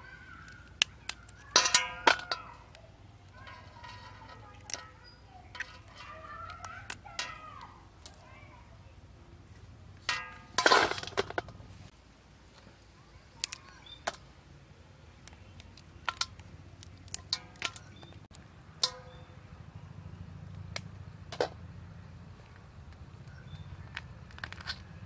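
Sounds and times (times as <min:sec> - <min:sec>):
crab shells cracking: 0:00.1 - 0:08.3, 0:13.3 - 0:14.3, 0:15.0 - 0:19.3, 0:23.2 - 0:25.0
shell clattering against metal bowl: 0:01.5 - 0:02.8, 0:17.0 - 0:18.1, 0:18.8 - 0:19.2.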